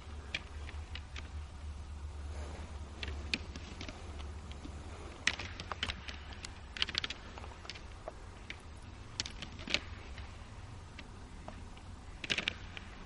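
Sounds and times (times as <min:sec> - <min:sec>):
antlers clacking together: 0:02.9 - 0:13.0.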